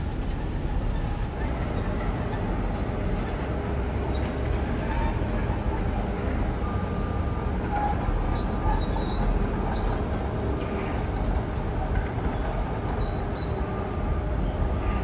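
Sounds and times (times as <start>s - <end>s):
diesel machinery rumble: 0.0s - 15.0s
faint high squeaks: 0.2s - 6.8s.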